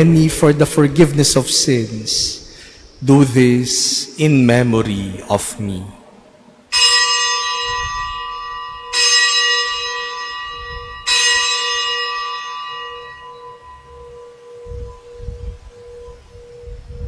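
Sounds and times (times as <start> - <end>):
bell ringing: 6.7 - 15.2.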